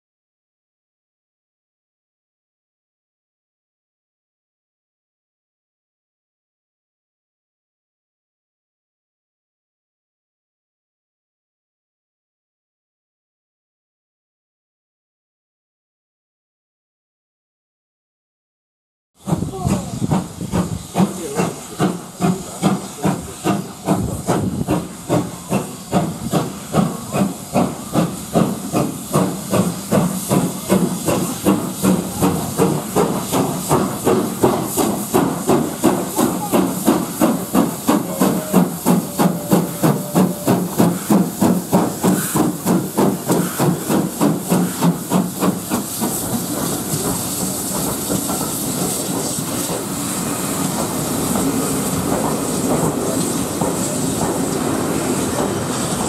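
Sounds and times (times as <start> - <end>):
steam hissing: 19.2 - 56.0
steam locomotive chuffing: 19.2 - 56.0
train coaches rolling: 19.2 - 56.0.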